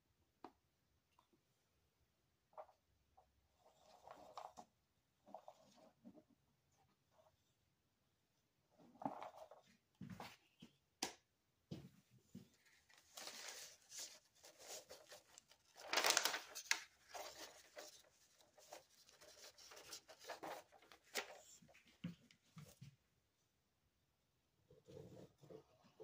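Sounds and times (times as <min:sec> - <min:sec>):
paper rustling: 0:12.4 - 0:22.8.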